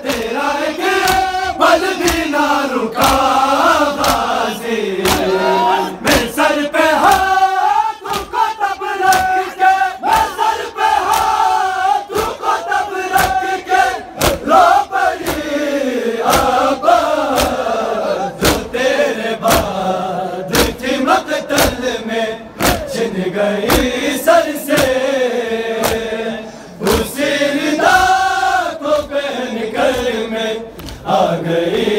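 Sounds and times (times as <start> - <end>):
hands slapping chests: 0.0 - 0.4, 1.0 - 2.4, 3.0 - 4.4, 5.0 - 5.4, 7.0 - 7.4, 8.0 - 11.5, 13.1 - 13.5, 14.2 - 15.6, 16.2 - 16.6, 17.2 - 17.7, 18.4 - 18.7, 19.4 - 19.8, 20.5 - 20.8, 21.4 - 21.8, 22.6 - 22.9, 24.7 - 25.0, 25.8 - 26.1, 30.8 - 31.1
men chanting: 0.0 - 31.9.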